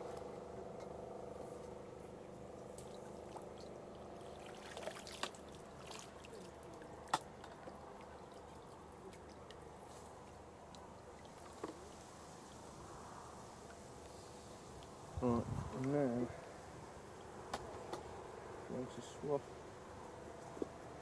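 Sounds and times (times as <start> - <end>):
water trickling and dripping: 2.5 - 12.7.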